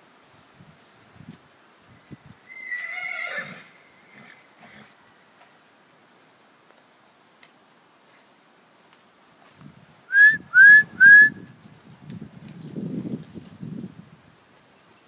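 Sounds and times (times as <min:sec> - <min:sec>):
horse whinnying: 0:02.4 - 0:05.0.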